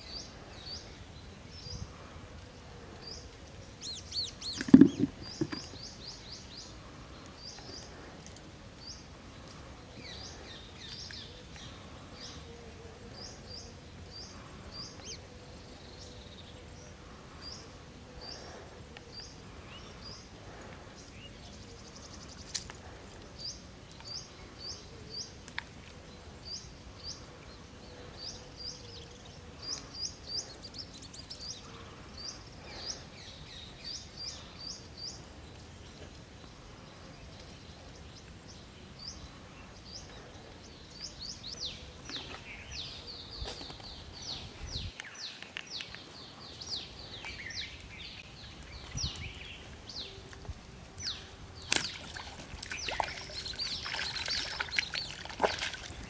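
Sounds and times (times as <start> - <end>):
small birds chirping: 0.0 - 56.0
fish splashing in water: 51.7 - 56.0.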